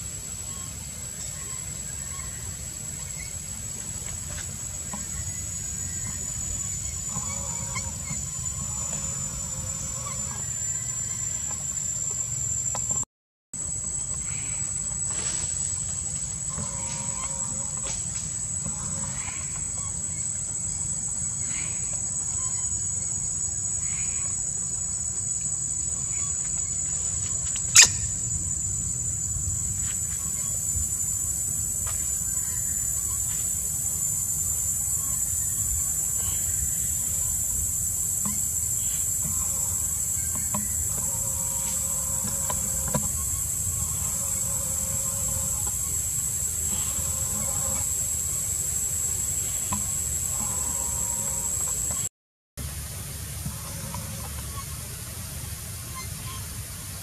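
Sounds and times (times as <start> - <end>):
insects high-pitched drone: 0.0 - 57.0
low rumble: 25.2 - 34.2.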